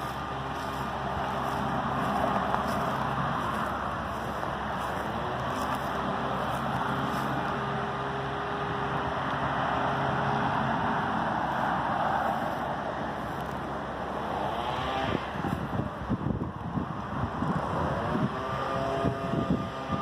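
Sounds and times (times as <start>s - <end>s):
road traffic: 0.0s - 20.0s
wind on microphone: 14.5s - 20.0s.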